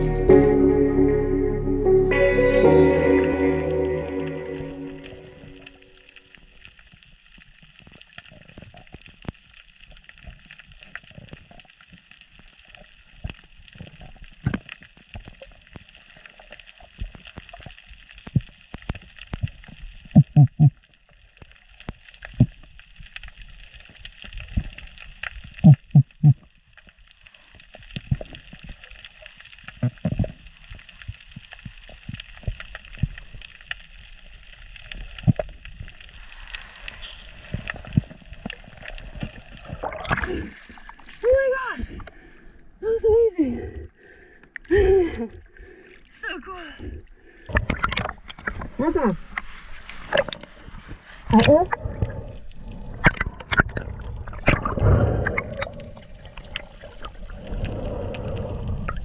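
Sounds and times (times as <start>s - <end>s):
water gurgles and thumps: 6.6s - 42.4s, 46.8s - 59.0s
underwater crackling hiss: 13.0s - 40.8s, 48.4s - 59.0s.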